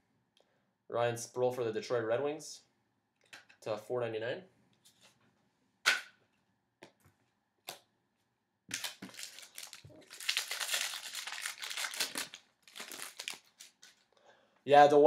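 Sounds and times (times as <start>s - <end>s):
wrapper crinkling and tearing: 8.7s - 14.1s.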